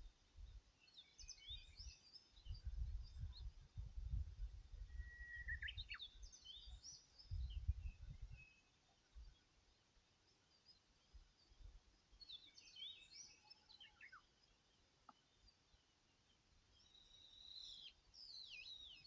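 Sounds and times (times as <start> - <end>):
small birds chirping: 0.4 - 19.0
wind buffeting microphone: 2.4 - 6.0, 7.2 - 8.4.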